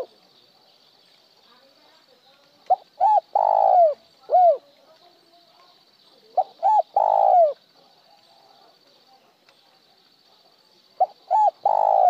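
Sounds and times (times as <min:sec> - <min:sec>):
dove cooing: 0:02.7 - 0:04.7, 0:06.3 - 0:07.9, 0:11.0 - 0:12.0.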